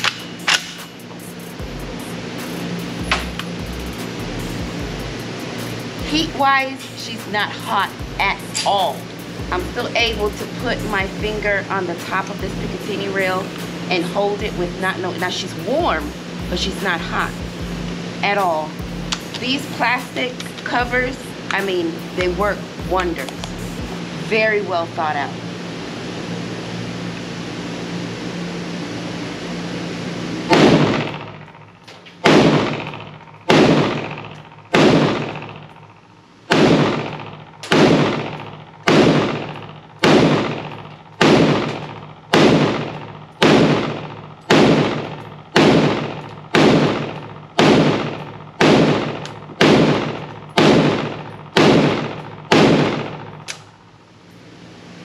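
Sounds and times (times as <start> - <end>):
steady hum: 0.0 - 55.0
gunshots echoing indoors: 30.5 - 31.4, 32.2 - 53.5.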